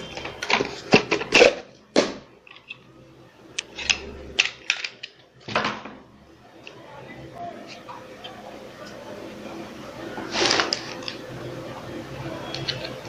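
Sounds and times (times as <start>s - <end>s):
plastic parts clicking and tapping: 3.6s - 5.8s.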